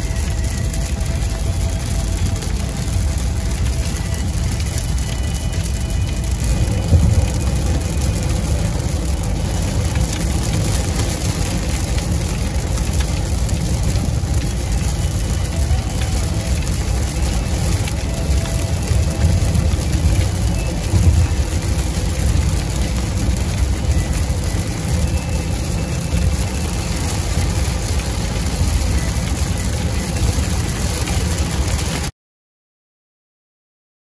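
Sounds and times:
rain on car: 0:00.0 - 0:32.1
road and tyre noise: 0:00.0 - 0:32.1.

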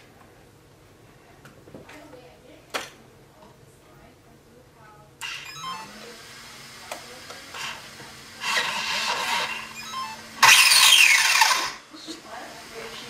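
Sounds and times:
electric motor whirring through gears: 0:06.4 - 0:11.8.

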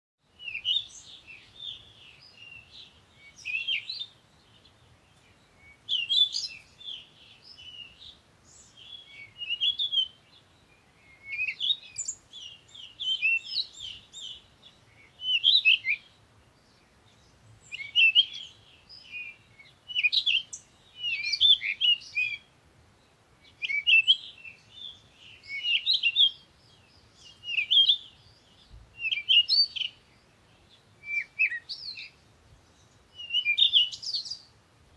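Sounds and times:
songbird chirping: 0:00.2 - 0:34.9.

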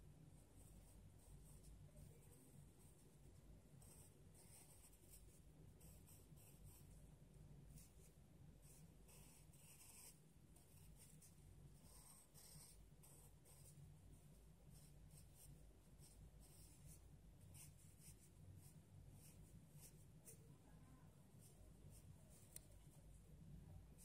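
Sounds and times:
low steady hum: 0:00.0 - 0:24.0
pencil scratching on paper: 0:03.8 - 0:07.0, 0:07.7 - 0:20.5.

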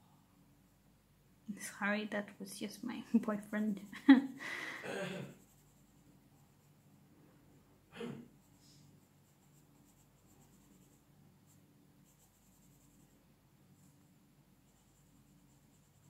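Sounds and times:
low steady hum: 0:00.0 - 0:16.0
pencil scratching on paper: 0:03.2 - 0:04.4, 0:05.3 - 0:06.8, 0:08.4 - 0:13.2, 0:14.6 - 0:16.0.

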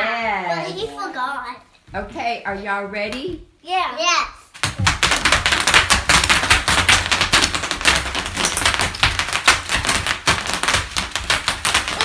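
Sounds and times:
bubble wrap popping: 0:04.6 - 0:12.0.

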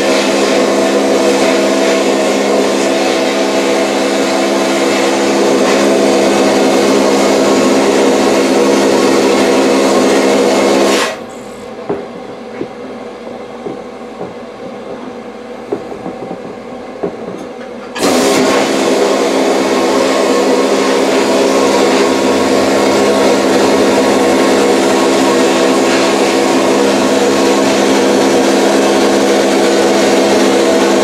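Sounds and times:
quiet steady running machine: 0:00.0 - 0:31.0
vapor blasting gun hissing: 0:18.0 - 0:31.0.

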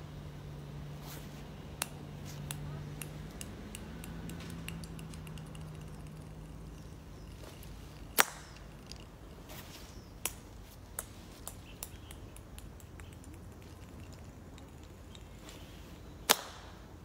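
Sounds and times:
faint clicks: 0:01.8 - 0:09.5, 0:10.2 - 0:15.7
slingshot rubber band snap: 0:08.1 - 0:08.6, 0:16.3 - 0:16.8.

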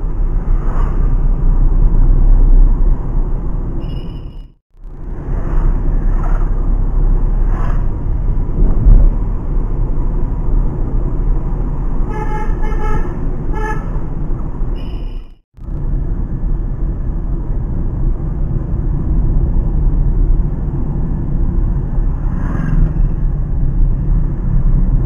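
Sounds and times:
engine and road rumble: 0:00.0 - 0:25.0
car horn honks: 0:12.1 - 0:14.0.

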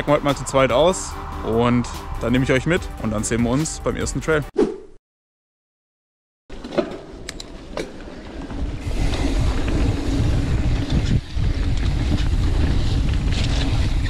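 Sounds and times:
bike tyres rolling on dirt: 0:06.5 - 0:14.0
wind on microphone: 0:08.4 - 0:14.0.

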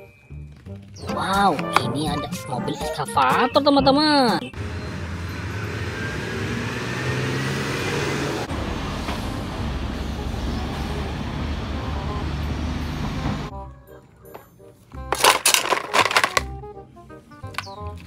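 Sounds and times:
road and tyre noise: 0:04.4 - 0:13.5
truck diesel engine: 0:04.4 - 0:13.5.

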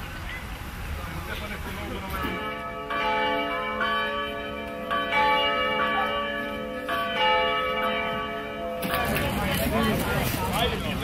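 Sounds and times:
church bells ringing: 0:02.0 - 0:11.0.

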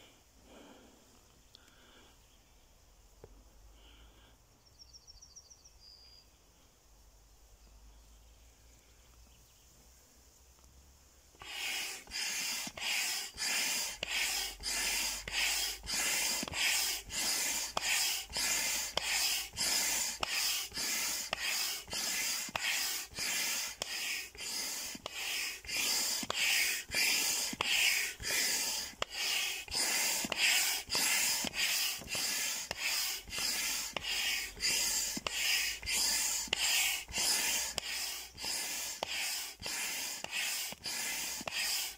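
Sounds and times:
hand air pump whooshing: 0:11.4 - 0:41.9.

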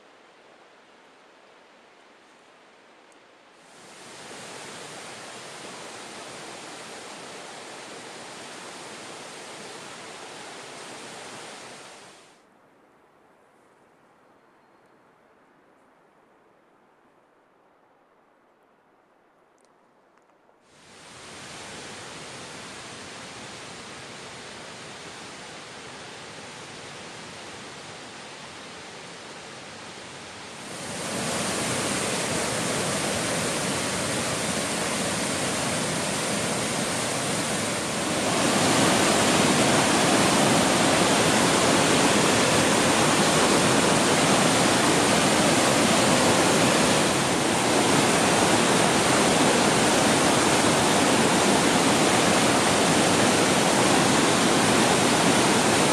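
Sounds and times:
waterfall roaring: 0:03.6 - 0:12.3, 0:20.8 - 0:55.9.

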